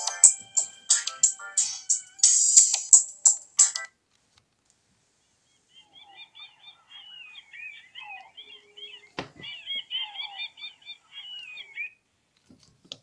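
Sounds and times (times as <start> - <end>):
bird-song ringtone chirps: 5.5 - 12.0.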